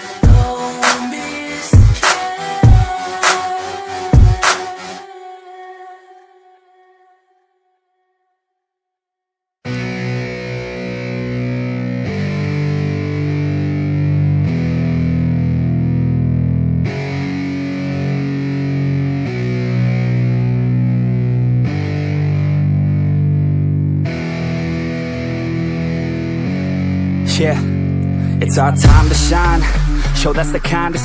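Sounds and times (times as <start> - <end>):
distorted electric guitar music: 0.0 - 3.3, 9.7 - 31.0.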